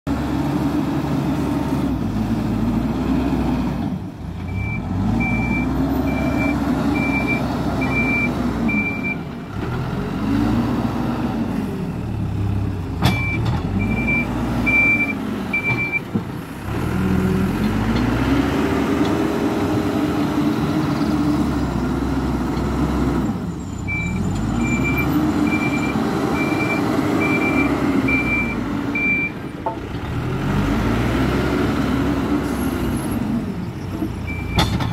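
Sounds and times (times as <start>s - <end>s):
backhoe diesel engine revving: 0.1s - 34.9s
reversing alarm beeps: 4.5s - 9.2s, 13.2s - 16.0s, 23.9s - 29.4s.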